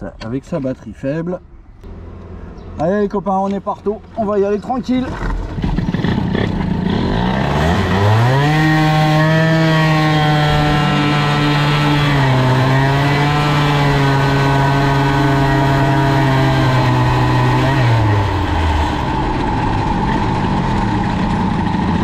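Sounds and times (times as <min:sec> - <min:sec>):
two-stroke moped engine revving: 0:05.0 - 0:22.0.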